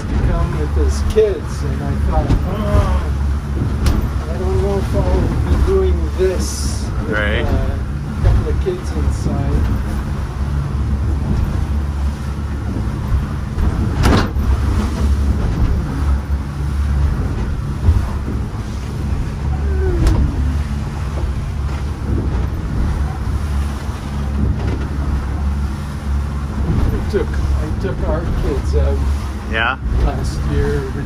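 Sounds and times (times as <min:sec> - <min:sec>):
boat engine droning: 0:00.0 - 0:31.0
water rushing: 0:00.0 - 0:31.0
sharp knocks: 0:13.1 - 0:15.8.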